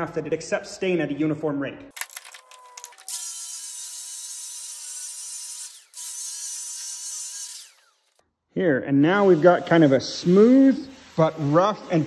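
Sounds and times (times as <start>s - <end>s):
power sander sanding wood: 3.1s - 8.2s, 9.2s - 12.0s.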